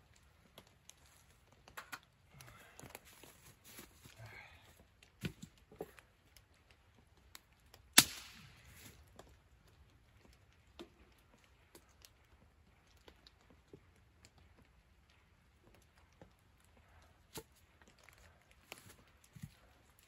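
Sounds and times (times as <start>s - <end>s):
sharp crack: 8.0s - 8.9s.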